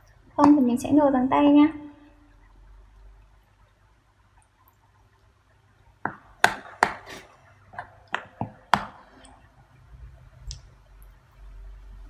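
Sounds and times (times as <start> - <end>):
metal utensil scraping bowl: 7.0 - 7.4.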